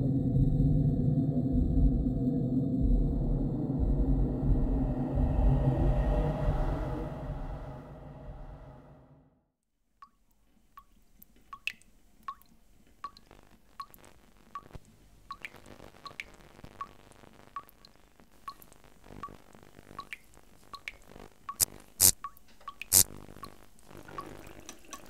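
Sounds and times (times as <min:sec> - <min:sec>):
water dripping into a basin: 0:09.9 - 0:25.0.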